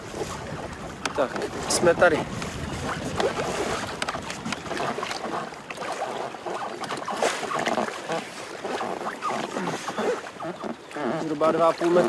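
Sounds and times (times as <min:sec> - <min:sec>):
wind on microphone: 0:00.0 - 0:08.0
short splashes and knocks: 0:00.0 - 0:12.0
waves slapping boat hull: 0:00.0 - 0:12.0.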